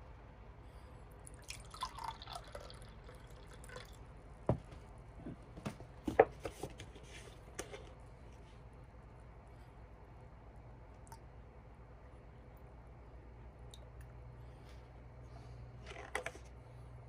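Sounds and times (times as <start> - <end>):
drink pouring into a glass: 1.3 - 4.0
clicks and knocks of containers: 15.8 - 16.5.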